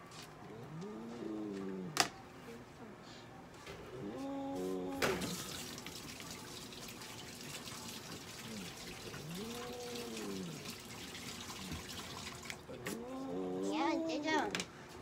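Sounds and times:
tap water running: 5.0 - 12.8.

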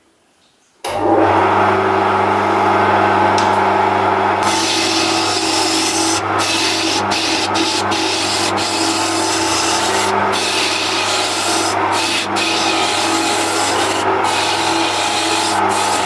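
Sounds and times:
shavings rubbing spinning wood: 4.4 - 16.0
wood lathe motor hum: 4.4 - 16.0.

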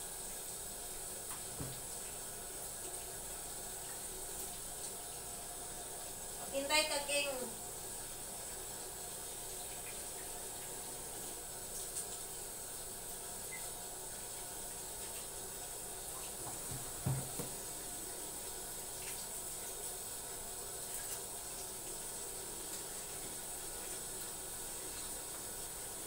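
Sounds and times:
tap running into sink: 1.3 - 2.1, 16.2 - 17.8
low thump: 16.7 - 17.6.

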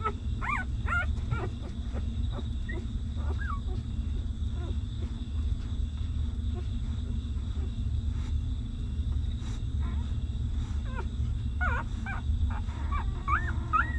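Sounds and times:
puppies whimpering: 0.0 - 5.5, 9.7 - 13.9
steady low hum: 0.0 - 13.9.

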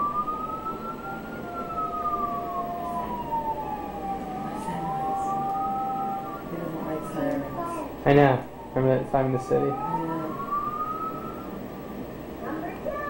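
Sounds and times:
siren wailing: 0.0 - 13.0
steady tone: 0.0 - 13.0.

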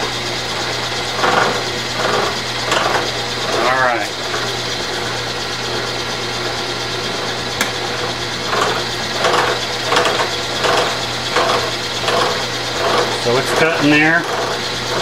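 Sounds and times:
coolant flowing: 0.0 - 15.0
cutter scraping metal: 0.0 - 15.0
milling machine motor hum: 0.0 - 15.0.

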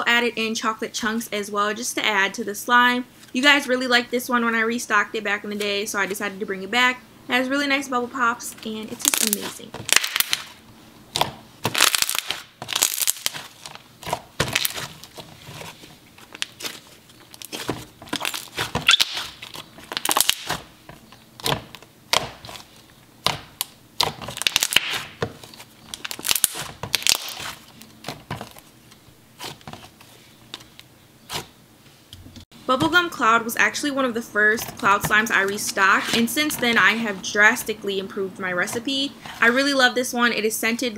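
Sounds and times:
slime squishing and popping: 9.1 - 15.2, 16.3 - 20.7, 23.2 - 27.6.

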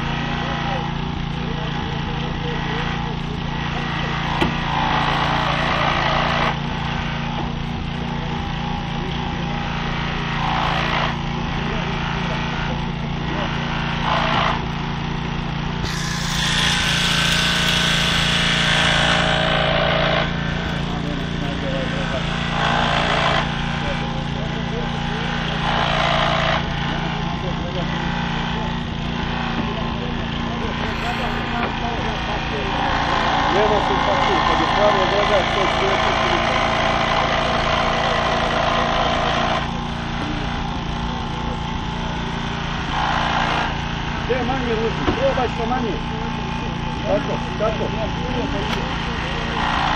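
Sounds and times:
loud grinding of rescue tool: 0.0 - 49.9
small engine humming: 0.0 - 49.9
loud hissing: 15.8 - 19.7.

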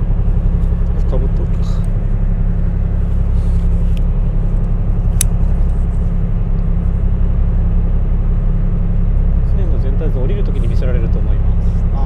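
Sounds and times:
ferry engine drone: 0.0 - 12.0
sharp click: 5.1 - 5.4.

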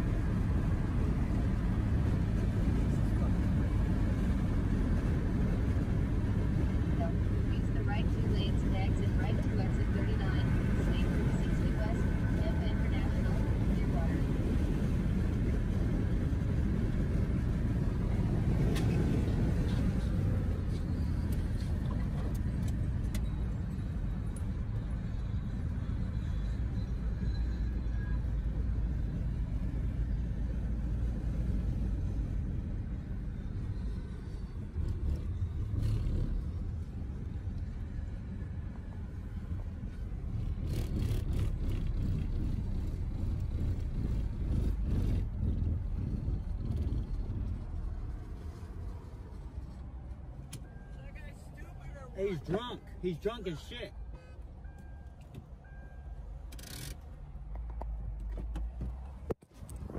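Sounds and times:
car driving interior rumble: 0.0 - 59.9.

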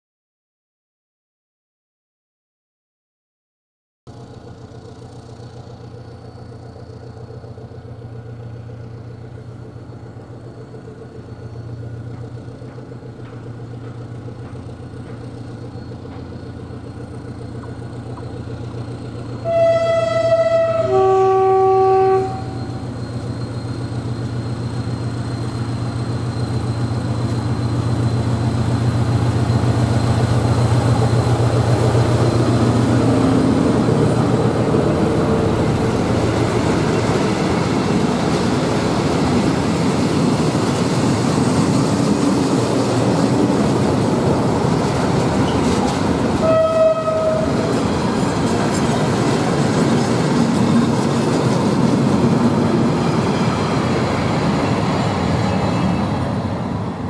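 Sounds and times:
tank wagons rolling by: 4.1 - 20.7, 22.2 - 57.0
diesel locomotive engine running: 4.1 - 57.0
locomotive horn blasts: 19.4 - 22.9, 46.4 - 47.7.

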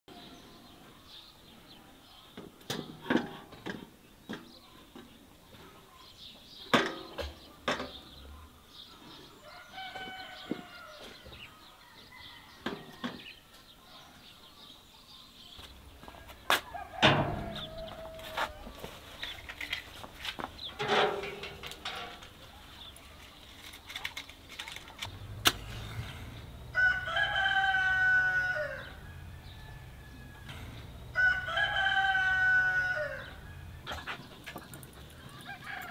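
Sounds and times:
sharp knocks and clatter: 19.5 - 22.4
chickens clucking: 30.1 - 35.9.

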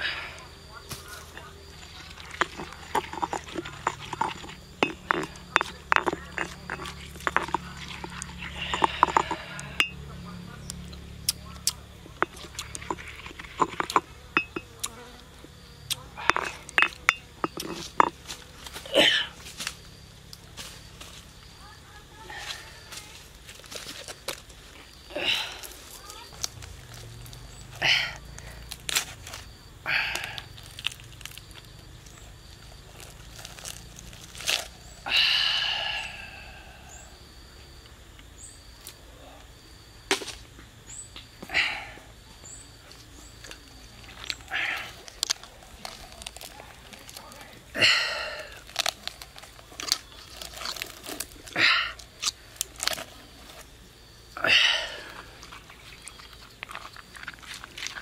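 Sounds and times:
faint insect buzz: 0.0 - 50.4
stone pestle knocking in mortar: 12.2 - 14.7.

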